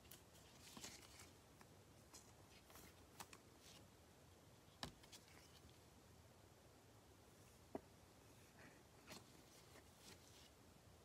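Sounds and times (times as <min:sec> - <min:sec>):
trading cards rustling and clicking: 0:00.0 - 0:03.8.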